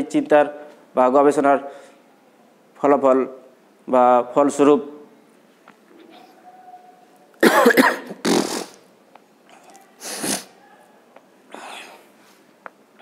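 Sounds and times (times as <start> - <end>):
man coughing: 7.4 - 8.5.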